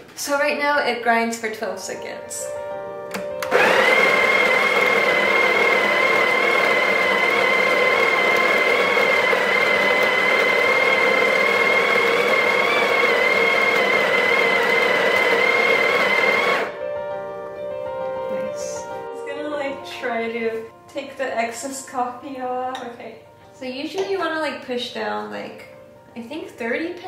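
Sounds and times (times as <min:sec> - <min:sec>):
coffee grinder whining: 0:03.4 - 0:16.8.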